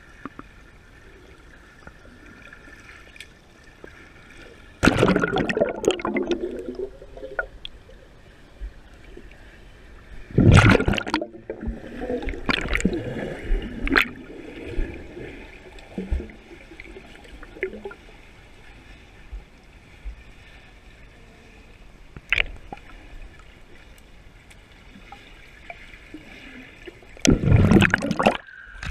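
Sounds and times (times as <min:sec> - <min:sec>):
muffled underwater churning: 0:00.0 - 0:28.9
splashes: 0:04.8 - 0:07.6, 0:10.3 - 0:18.0, 0:25.0 - 0:28.9.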